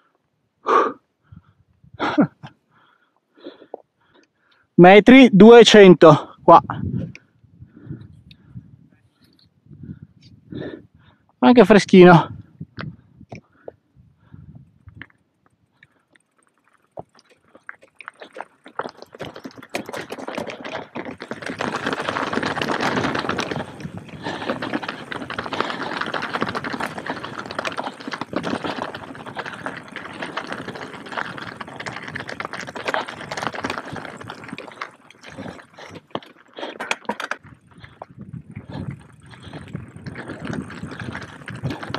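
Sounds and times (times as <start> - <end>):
bike tyres crunching on stones: 15.0 - 41.9.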